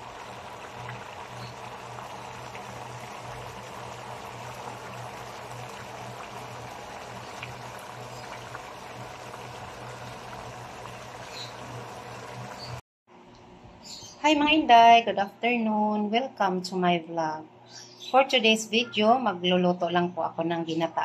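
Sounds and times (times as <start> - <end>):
stew bubbling in a pan: 0.0 - 12.8.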